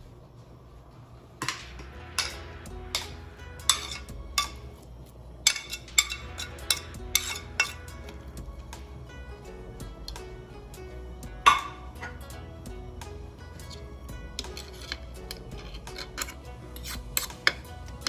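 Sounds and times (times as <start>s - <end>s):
low steady hum: 0.0s - 18.0s
metal utensils knocking on cookware: 1.4s - 4.7s, 5.4s - 8.4s, 11.4s - 12.4s.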